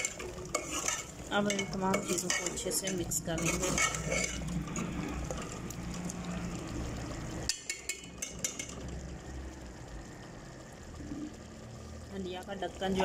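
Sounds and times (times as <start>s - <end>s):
ladle stirring in metal pot: 0.0s - 5.7s, 7.4s - 8.9s.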